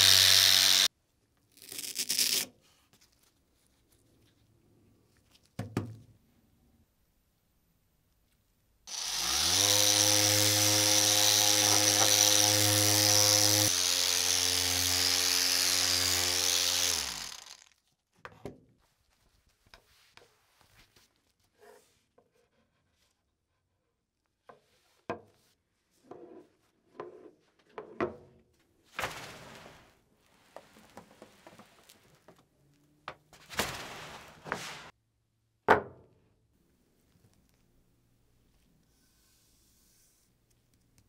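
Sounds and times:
power drill spinning: 0.0 - 0.9, 8.9 - 17.8.

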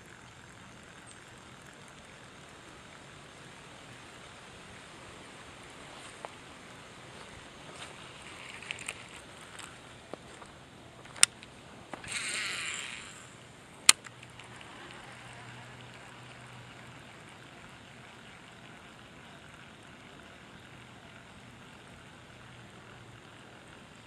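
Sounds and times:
reel winding: 0.0 - 3.2, 8.0 - 9.8, 11.0 - 24.0
fishing reel whir: 0.0 - 5.8, 6.6 - 24.0
fishing reel click: 8.2 - 9.8, 11.1 - 18.6.

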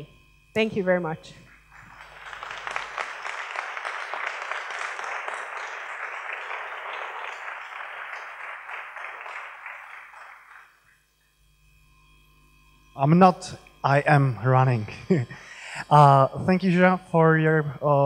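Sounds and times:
audience applauding: 1.7 - 10.9.

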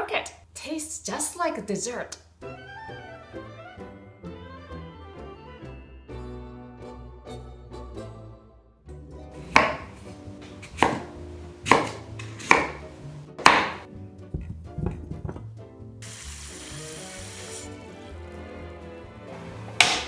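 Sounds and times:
knife chopping on wooden board: 9.4 - 13.9, 19.8 - 20.0
tap water running into saucepan: 16.0 - 17.9.

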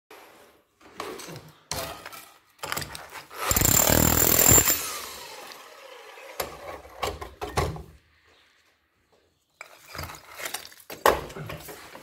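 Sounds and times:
power saw cutting brick: 2.8 - 7.0.

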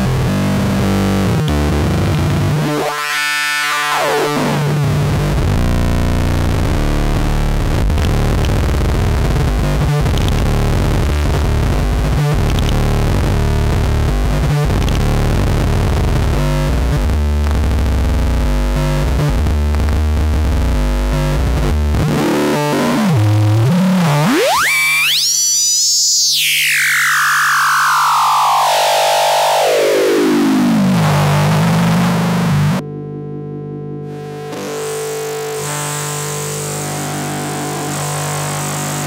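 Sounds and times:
harsh buzzy synthesizer tone: 18.2 - 32.8.

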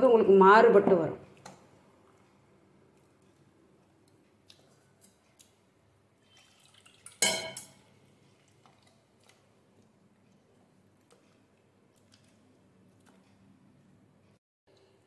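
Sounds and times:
wet stirring of batter: 1.2 - 13.5
metallic clank of steel pot: 7.2 - 7.8.

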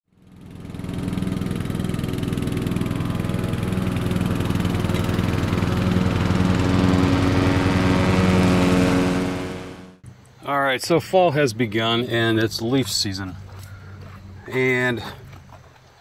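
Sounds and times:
mower engine idling: 0.1 - 10.3.

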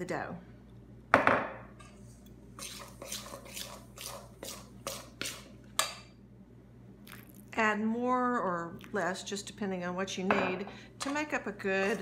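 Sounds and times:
spoon scraping metal bowl: 1.9 - 5.4.

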